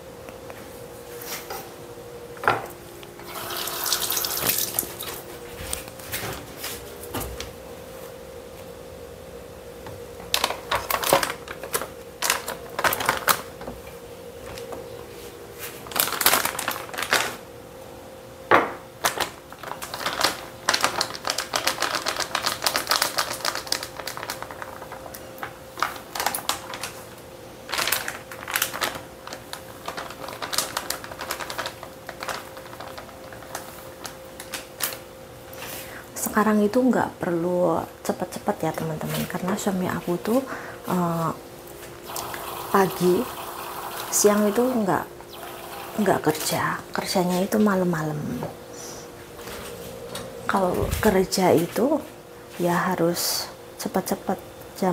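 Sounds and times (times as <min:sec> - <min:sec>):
steady low hum: 0:00.0 - 0:19.8, 0:23.9 - 0:54.9
plastic packets crinkling and tearing: 0:10.4 - 0:13.5, 0:15.8 - 0:17.4, 0:19.0 - 0:35.0.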